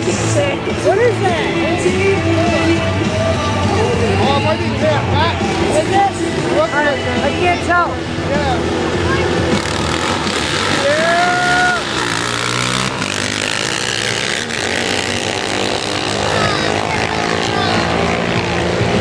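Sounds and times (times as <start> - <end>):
engines at full throttle: 0.0 - 19.0
person yelling: 10.8 - 11.9, 16.2 - 17.8.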